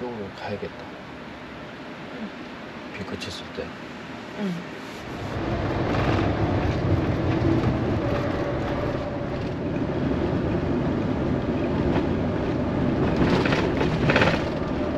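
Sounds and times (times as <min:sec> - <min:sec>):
tyre and engine rumble inside van: 0:04.3 - 0:14.9.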